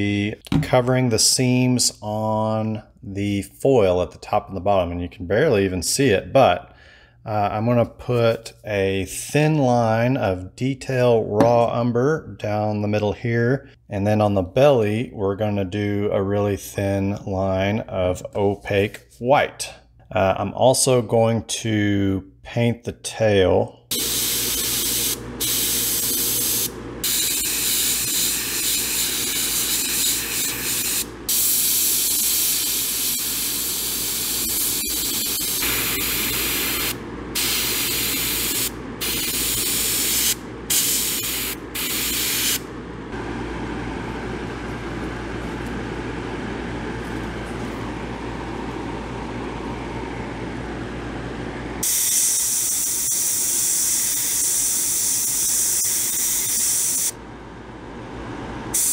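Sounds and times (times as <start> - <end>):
steady low hum: 0.0 - 52.0, 57.0 - 58.9
airbrush hissing: 23.9 - 42.7, 51.8 - 57.1.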